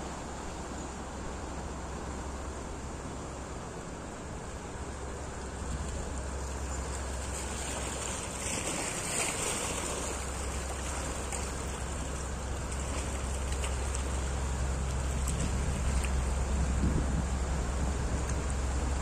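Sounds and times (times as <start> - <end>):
barge diesel engine drone: 0.0 - 19.0
water sloshing against bank: 5.6 - 16.6
water splashing: 5.6 - 16.9.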